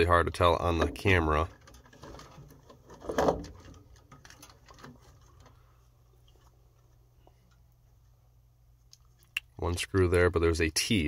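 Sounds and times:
low steady hum: 0.0 - 11.0
faint clicks and plastic rattles: 0.5 - 8.1.

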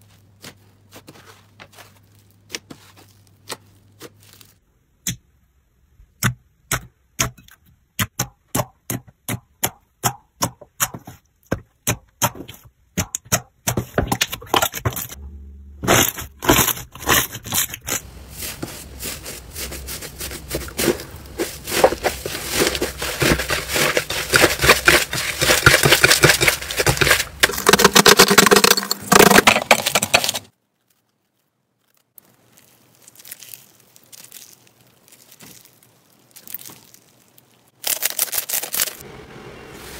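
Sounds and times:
faint crinkly sounds: 0.0 - 4.7, 17.2 - 27.5, 30.1 - 39.0
slime crackling and crunching: 0.1 - 4.6, 15.8 - 39.0.

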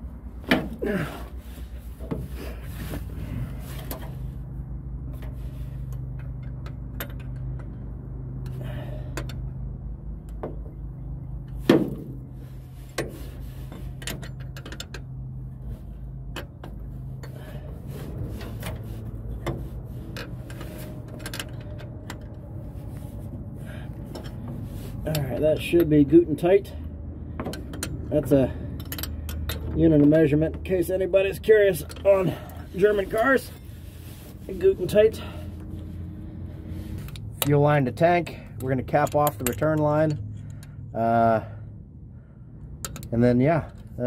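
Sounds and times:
steady low hum: 0.0 - 44.0
wrench clicking and scraping: 5.2 - 9.6, 12.8 - 15.3, 16.3 - 22.8, 27.4 - 30.3, 36.9 - 40.9, 42.7 - 43.9.

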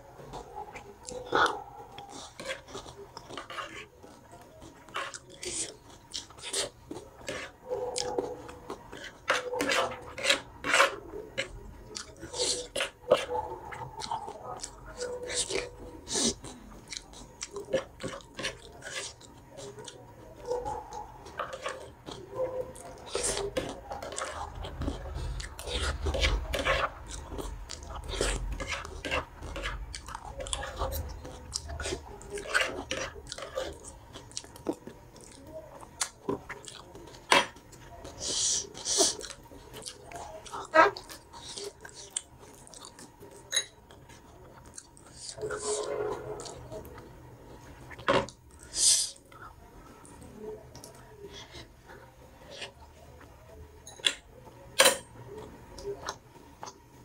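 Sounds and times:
person chewing: 0.2 - 53.3, 54.8 - 57.0
cutlery scraping a plate: 6.2 - 11.5, 17.7 - 20.6, 21.2 - 22.2, 22.8 - 34.2, 43.4 - 44.2, 45.3 - 46.8.

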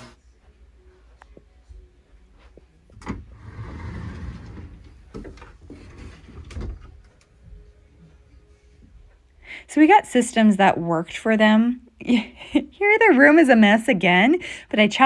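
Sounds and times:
door rubbing slide: 3.0 - 7.0.

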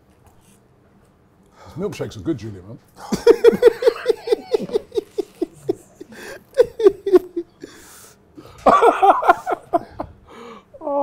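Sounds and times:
man laughing: 3.0 - 7.8, 8.6 - 10.2.

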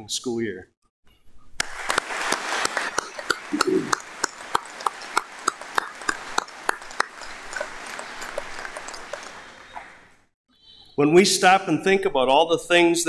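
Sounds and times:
sharp single claps: 1.6 - 10.0
crowd applause: 1.6 - 10.2.

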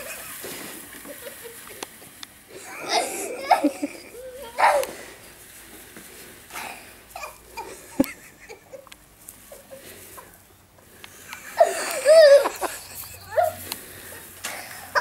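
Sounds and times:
person laughing loudly: 0.0 - 1.8, 2.6 - 4.2, 7.5 - 8.9, 11.3 - 13.6.

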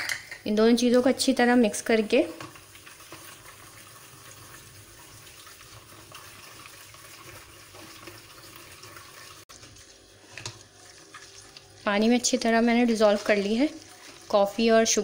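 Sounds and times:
spatula swishing in a bowl: 9.1 - 15.0.

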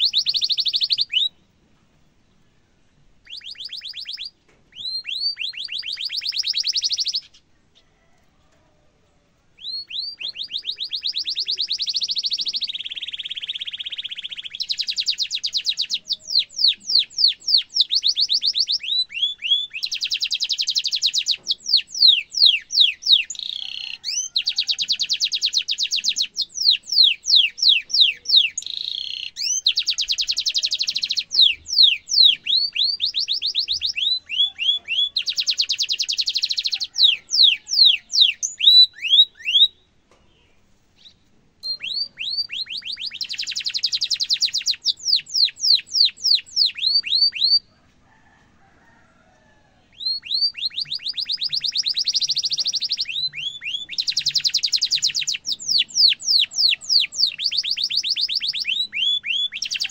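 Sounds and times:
canary singing: 0.0 - 1.6, 2.9 - 8.2, 9.6 - 47.8, 49.9 - 59.9.

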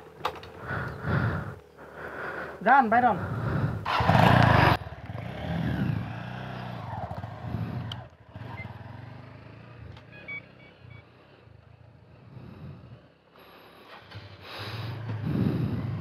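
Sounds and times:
motorcycle engine revving: 3.3 - 16.0.

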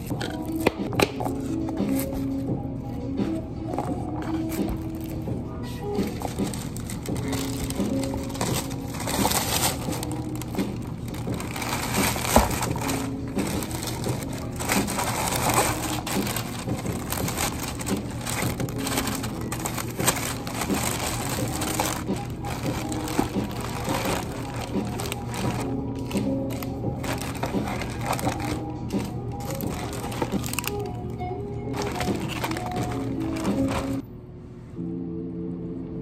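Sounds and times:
plastic bag crinkling: 5.9 - 34.0.

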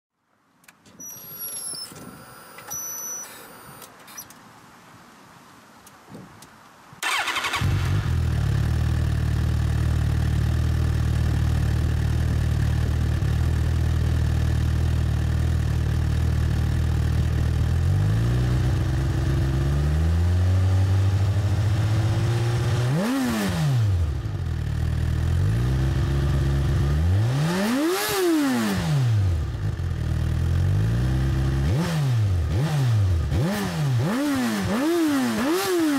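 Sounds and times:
motorcycle engine revving: 7.0 - 35.9
motorcycle engine idling: 8.2 - 17.8.

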